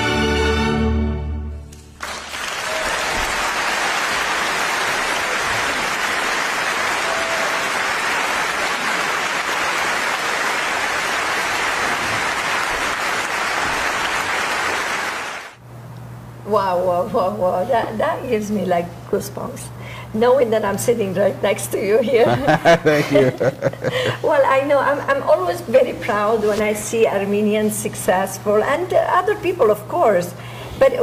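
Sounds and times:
audience applauding: 0:01.7 - 0:15.6.

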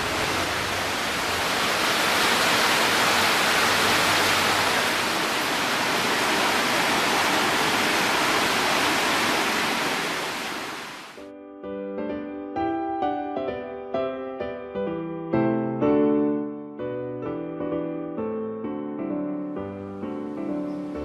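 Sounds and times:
stream water rushing and splashing: 0:00.0 - 0:11.2.

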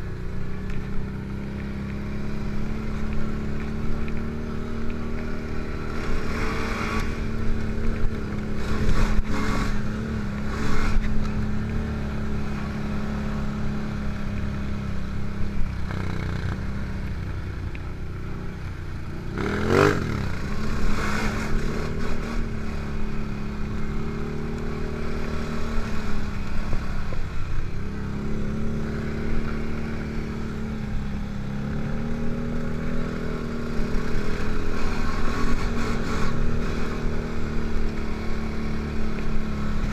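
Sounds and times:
quad bike engine running: 0:00.0 - 0:39.9.

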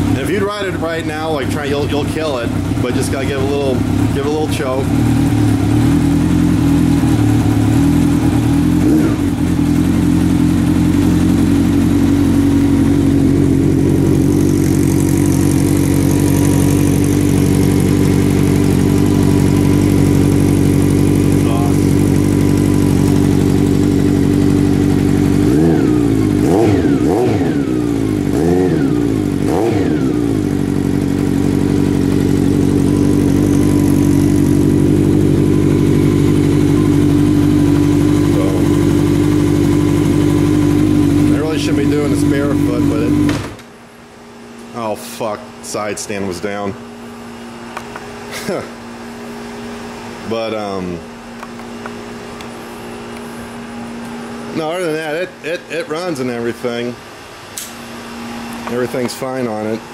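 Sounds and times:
motorcycle engine idling: 0:00.0 - 0:43.5
motorcycle throttle blips: 0:00.0 - 0:43.7, 0:47.2 - 0:50.0.

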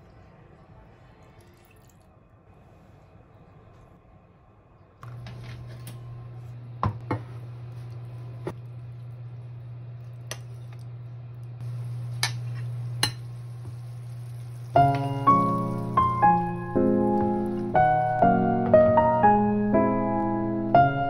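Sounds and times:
steady low hum: 0:02.4 - 0:18.6.

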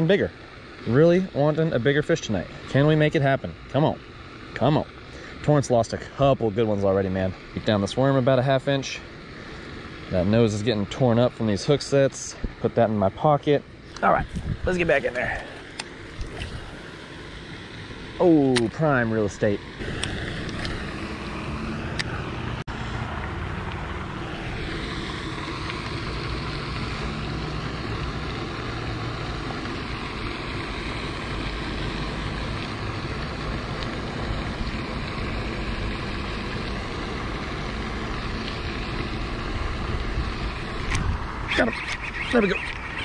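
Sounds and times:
wind buffeting microphone: 0:14.1 - 0:15.2.

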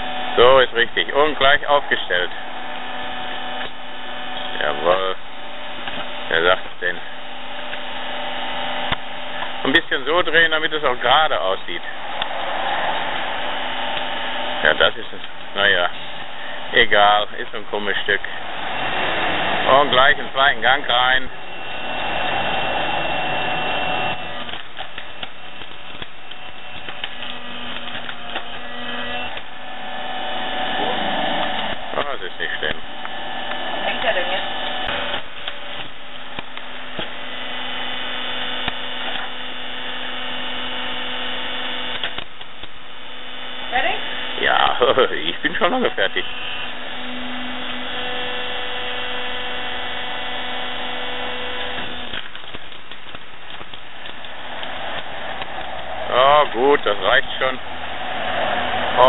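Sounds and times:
hydraulic log splitter running: 0:00.0 - 0:59.0
wood cracking and snapping: 0:23.5 - 0:29.7, 0:34.6 - 0:37.3, 0:41.9 - 0:42.8, 0:50.6 - 0:56.1.

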